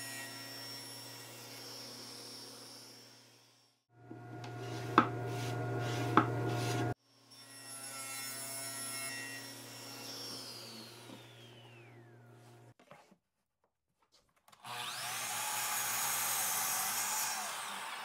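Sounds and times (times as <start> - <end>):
table saw cutting plywood: 4.0 - 12.1, 14.7 - 18.0.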